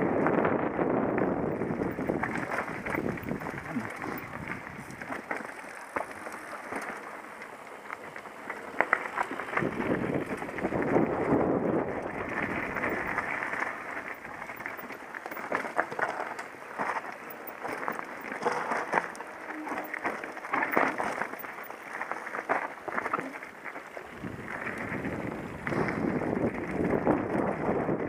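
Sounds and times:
rushing wind: 0.0s - 7.2s, 8.0s - 18.4s, 23.9s - 28.0s
bike rattling over rocks: 0.0s - 28.0s
tyres crackling on gravel: 0.0s - 28.0s.

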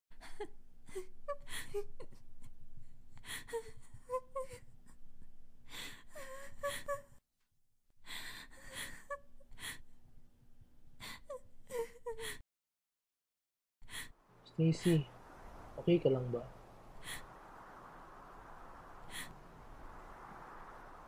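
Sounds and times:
woman crying: 0.2s - 2.2s, 6.2s - 7.2s.

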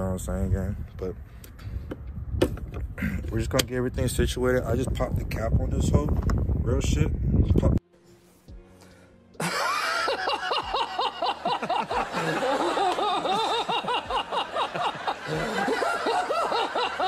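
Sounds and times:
group of people laughing: 9.4s - 17.0s.

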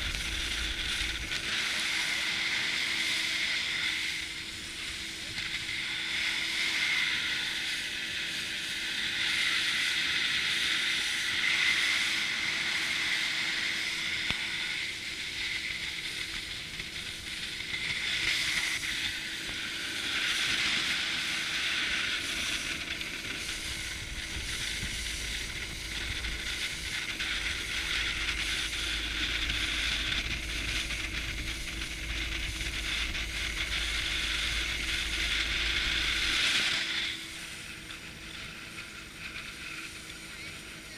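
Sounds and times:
low rumble: 0.0s - 1.7s, 22.2s - 40.1s
boat motor hum: 0.0s - 40.9s
water rushing along hull: 0.0s - 40.9s.

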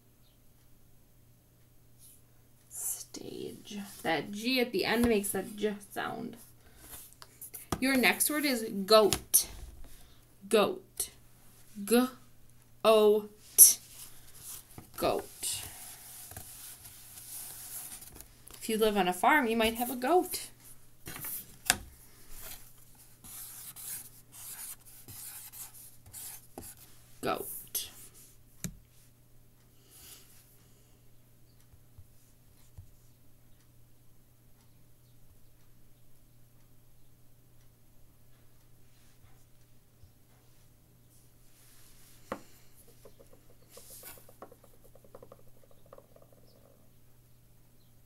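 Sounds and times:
marker scratching on surface: 23.2s - 26.8s, 42.9s - 46.7s
fingers rubbing through hair: 42.8s - 46.9s.

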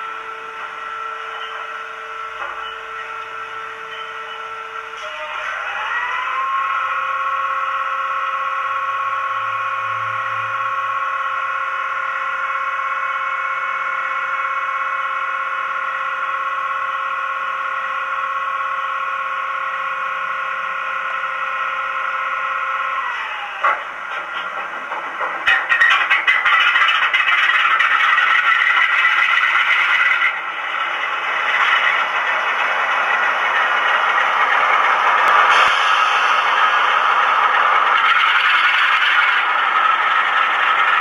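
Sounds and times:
diesel engine start-up whine: 0.0s - 41.0s.

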